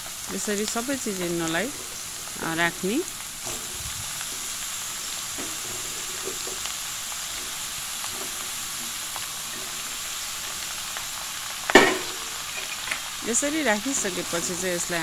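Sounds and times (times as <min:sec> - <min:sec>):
vegetables sizzling in hot oil: 0:00.0 - 0:15.0.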